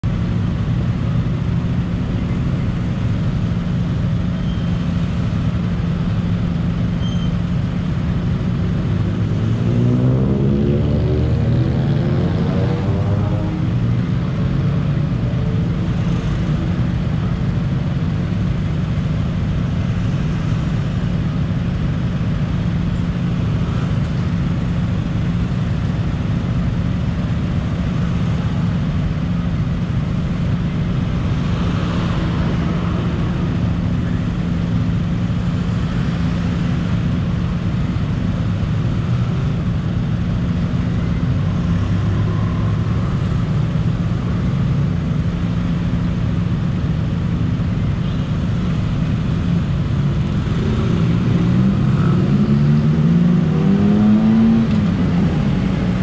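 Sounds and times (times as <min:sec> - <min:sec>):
scooter and car engines idling: 0:00.0 - 0:09.2, 0:13.6 - 0:31.5, 0:32.1 - 0:51.4
engine revving: 0:09.2 - 0:15.8, 0:50.2 - 0:56.0.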